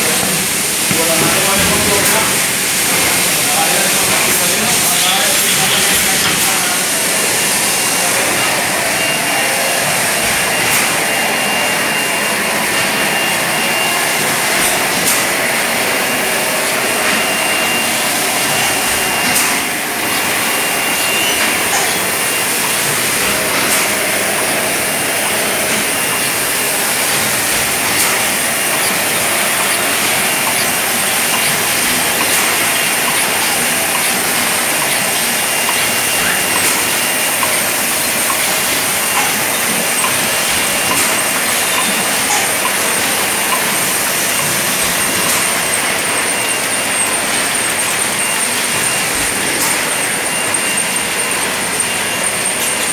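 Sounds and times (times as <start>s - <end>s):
bottling machinery hiss and hum: 0.0s - 52.9s.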